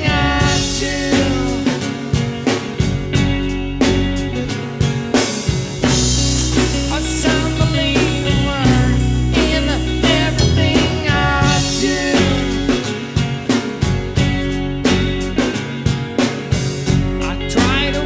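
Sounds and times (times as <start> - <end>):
person singing: 0.0 - 2.2, 6.5 - 13.1, 17.1 - 18.0
folk rock band playing: 0.0 - 18.0.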